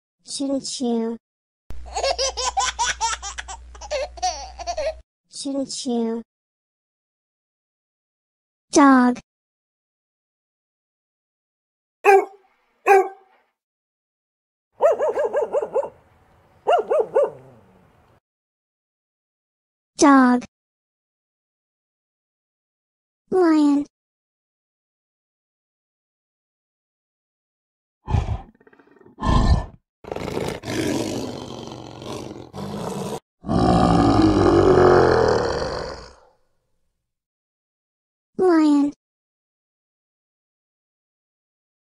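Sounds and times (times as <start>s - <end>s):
dog barking: 12.0s - 13.3s, 14.8s - 16.0s, 16.6s - 17.7s
lion roaring: 28.1s - 36.2s.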